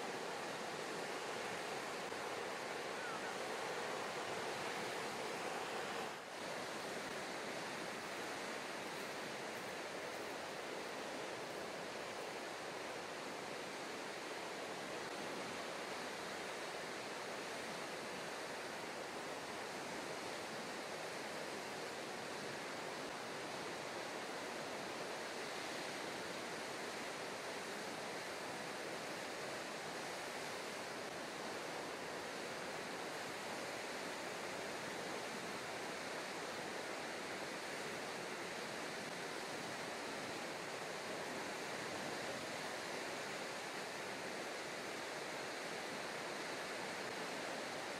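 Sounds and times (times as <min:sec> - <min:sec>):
sea rushing: 0:00.0 - 0:21.4.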